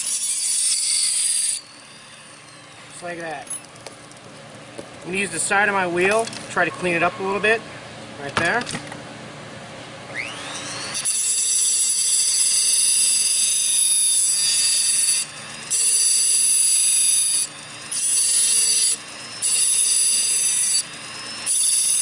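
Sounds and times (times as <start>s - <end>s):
cut-off wheel grinding steel: 0.0s - 3.6s, 10.2s - 22.0s
rotary tool motor whine: 0.0s - 4.3s, 10.1s - 22.0s.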